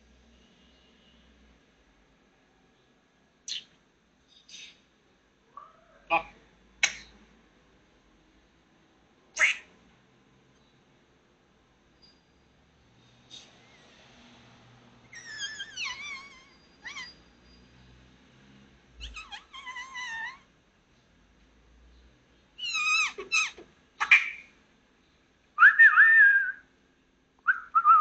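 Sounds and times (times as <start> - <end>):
kitten meowing: 15.2 - 17.2, 19.0 - 20.4.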